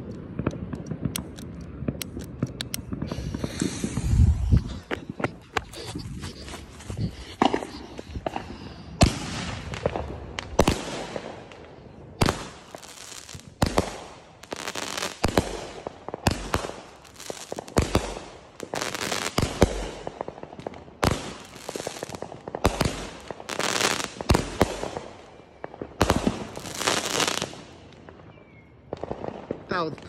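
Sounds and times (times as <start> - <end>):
firework crackling bursts: 1.0 - 4.4, 7.4 - 27.9.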